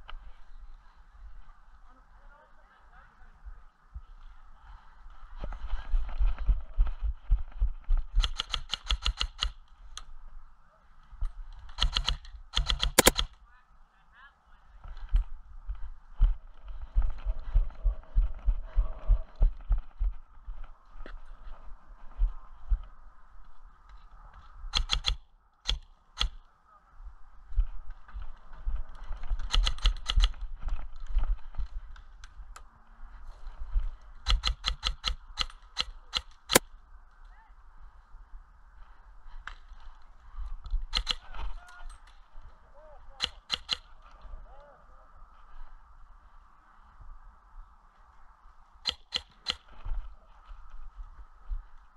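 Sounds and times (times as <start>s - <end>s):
running footsteps: 3.9s - 9.9s, 14.8s - 25.2s
airsoft rifle rapid shots: 8.2s - 9.6s, 11.8s - 13.3s, 24.7s - 26.4s, 40.9s - 41.3s.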